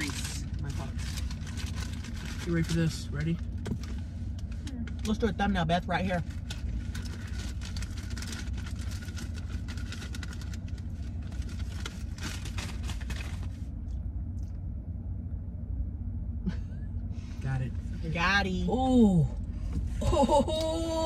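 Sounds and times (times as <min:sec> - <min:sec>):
paper or plastic rustling: 0:00.0 - 0:04.0, 0:06.3 - 0:13.7
car idling inside cabin: 0:00.0 - 0:21.0.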